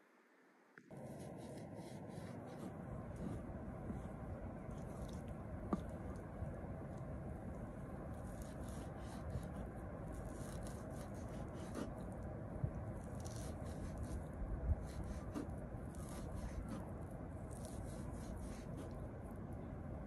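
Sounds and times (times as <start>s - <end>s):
low background noise: 0.0s - 20.0s
knife slicing meat: 8.2s - 12.0s, 13.0s - 14.2s, 14.8s - 16.9s, 17.5s - 19.0s.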